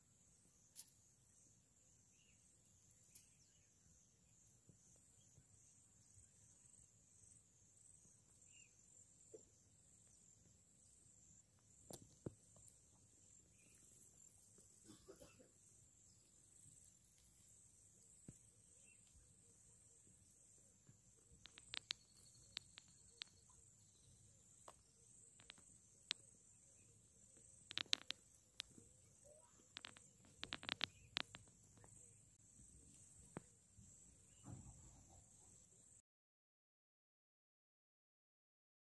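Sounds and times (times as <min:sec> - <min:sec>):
insect chorus: 0:00.0 - 0:36.0
soft chirp: 0:00.3 - 0:35.7
sharp clicks: 0:21.4 - 0:23.5, 0:24.6 - 0:26.2, 0:27.6 - 0:28.8, 0:29.7 - 0:31.9
high-pitched insect trill: 0:21.4 - 0:35.2.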